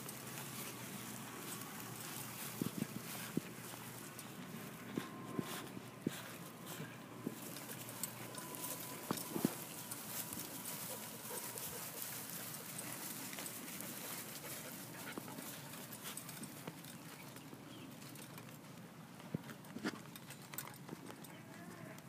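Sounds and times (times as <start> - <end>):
dog panting: 10.6 - 16.4.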